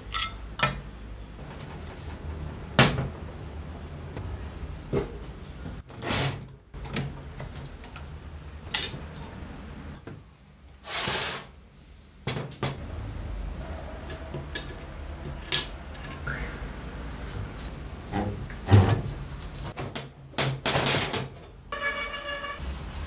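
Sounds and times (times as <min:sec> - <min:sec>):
metal parts sliding: 0:08.7 - 0:09.0, 0:14.0 - 0:16.3.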